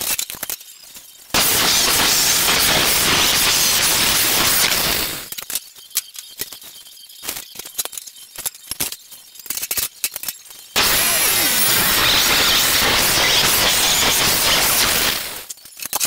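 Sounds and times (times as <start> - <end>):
angle grinder cutting steel: 1.4 - 5.3, 10.8 - 15.5.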